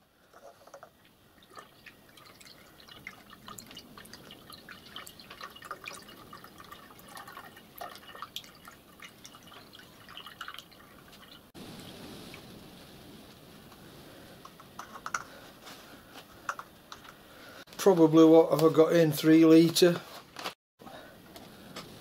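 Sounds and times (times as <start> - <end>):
water trickling and splashing: 0.2 - 13.3.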